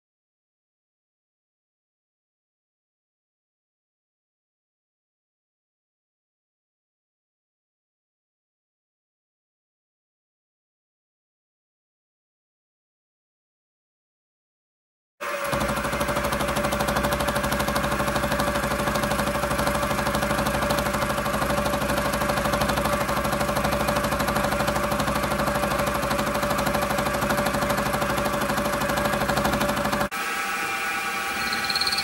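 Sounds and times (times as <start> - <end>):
milling machine motor hum: 15.2 - 32.0.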